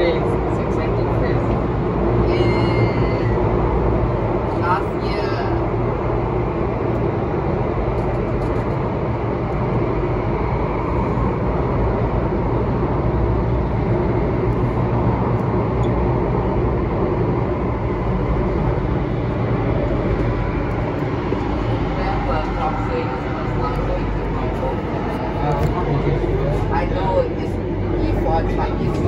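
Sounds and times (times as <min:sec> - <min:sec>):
low hum: 0:00.0 - 0:29.0
metro train rumbling in tunnel: 0:00.0 - 0:29.0.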